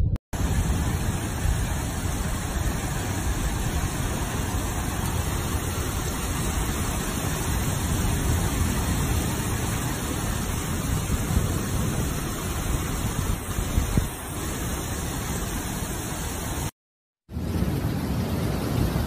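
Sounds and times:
low rumble: 0.0s - 5.6s
heavy rain on flooded street: 0.4s - 16.7s, 17.3s - 19.0s.

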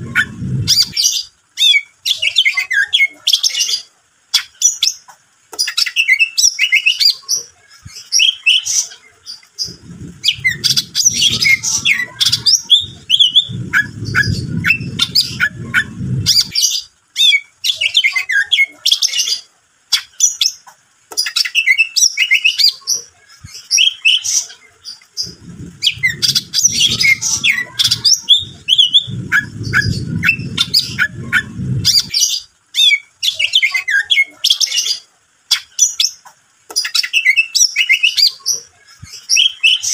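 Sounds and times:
low rumbling noise: 0.0s - 1.3s, 9.4s - 17.0s, 24.8s - 32.6s
bird singing chirps and trills: 0.0s - 39.9s.

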